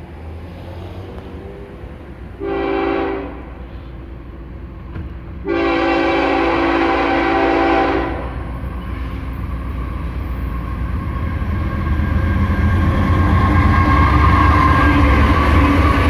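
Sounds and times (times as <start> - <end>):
low rumble of train: 0.0 - 16.0
locomotive air horn blasts: 2.4 - 3.9, 5.4 - 8.4.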